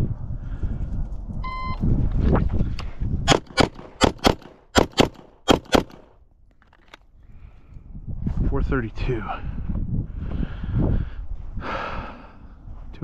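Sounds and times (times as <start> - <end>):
electronic timer beep: 1.4 - 1.8
pistol shots: 3.3 - 6.2.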